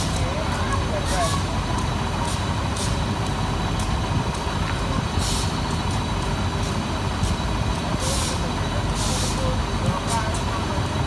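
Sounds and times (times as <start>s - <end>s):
train rumbling: 0.0s - 11.0s
air hiss: 5.0s - 5.8s, 6.6s - 10.6s.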